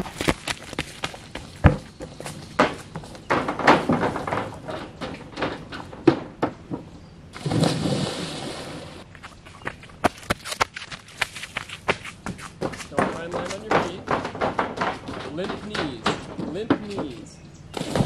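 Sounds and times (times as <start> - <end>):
bare feet running on wooden dock: 0.0 - 6.9, 9.0 - 18.0
splash of water: 7.4 - 9.0.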